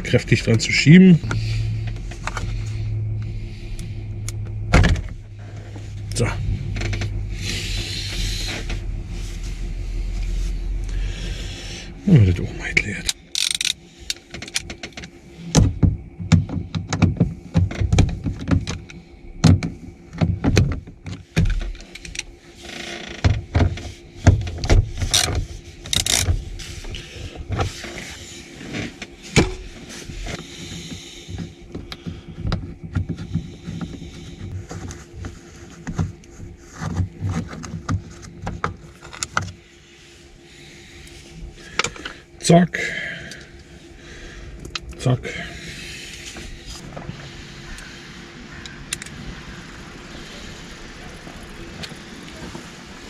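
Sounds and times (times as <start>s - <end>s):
plastic clicks and rattles: 13.1s - 15.1s.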